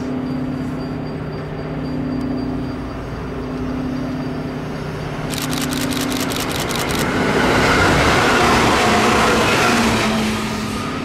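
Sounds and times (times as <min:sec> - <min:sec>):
vehicle engine humming: 0:00.0 - 0:07.4
rapid sharp high clicks: 0:05.3 - 0:07.1.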